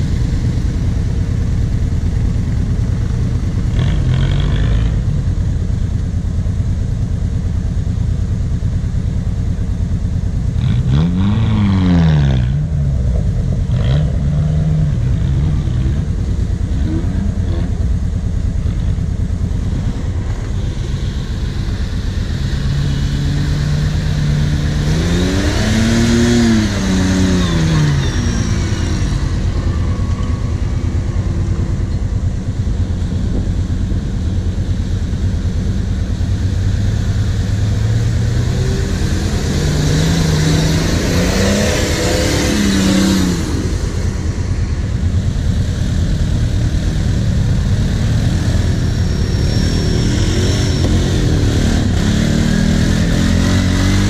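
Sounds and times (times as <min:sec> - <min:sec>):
off-road engines idling: 0:00.0 - 0:54.0
engine revving: 0:03.4 - 0:05.5, 0:10.4 - 0:54.0.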